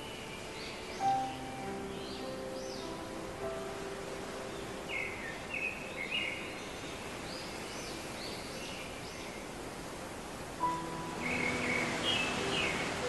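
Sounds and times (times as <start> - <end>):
birds chirping: 0.0 - 9.7, 10.6 - 13.0
steady outdoor hiss: 0.0 - 13.0.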